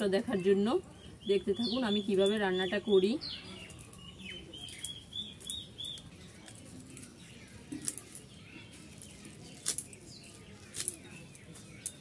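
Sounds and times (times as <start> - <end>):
birds chirping: 0.0 - 12.0
leaves snapping off stems: 4.6 - 8.3, 8.9 - 12.0.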